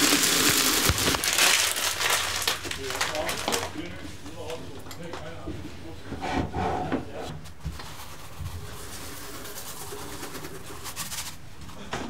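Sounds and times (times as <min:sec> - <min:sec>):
noodles cooking hiss: 0:00.0 - 0:02.6.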